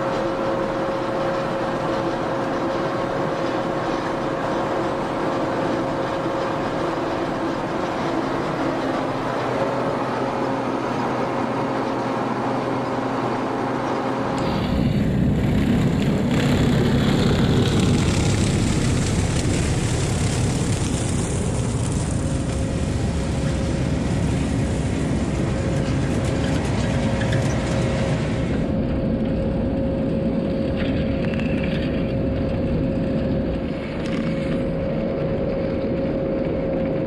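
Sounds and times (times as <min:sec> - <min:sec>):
tractor rumbling: 0:00.0 - 0:36.0
machine drone with tones: 0:00.0 - 0:37.0
soil being worked: 0:15.4 - 0:28.6.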